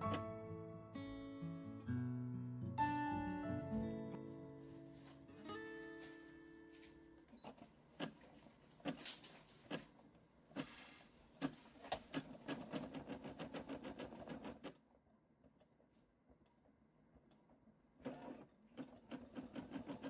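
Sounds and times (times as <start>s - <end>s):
embroidery machine stitching: 7.4s - 14.8s, 18.0s - 20.0s.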